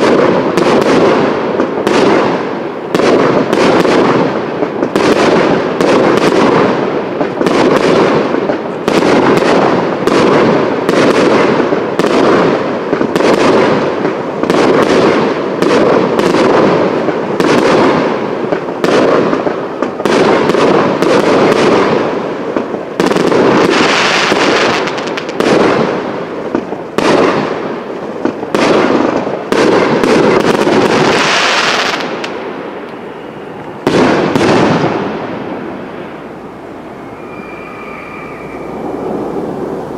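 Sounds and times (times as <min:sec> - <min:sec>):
fireworks crackling: 0:00.0 - 0:39.9
fireworks hissing: 0:30.4 - 0:39.9
sharp firework bang: 0:33.8 - 0:39.9.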